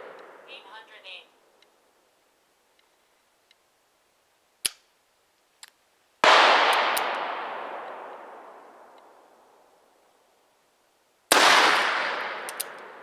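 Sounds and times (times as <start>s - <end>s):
sharp clicks: 4.6s - 4.9s, 12.4s - 12.9s
revolver gunshot: 6.2s - 8.1s, 11.3s - 13.0s.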